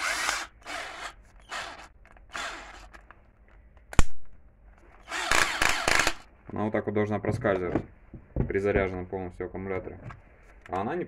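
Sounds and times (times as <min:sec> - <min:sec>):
cordless drill whirring: 0:00.0 - 0:03.0, 0:05.0 - 0:06.3.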